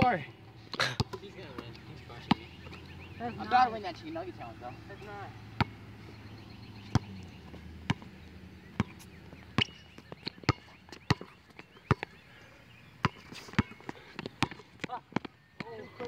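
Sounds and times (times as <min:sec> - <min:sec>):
basketball bouncing on hard court: 0:05.6 - 0:05.8, 0:06.8 - 0:08.1, 0:08.7 - 0:12.1, 0:13.0 - 0:15.8.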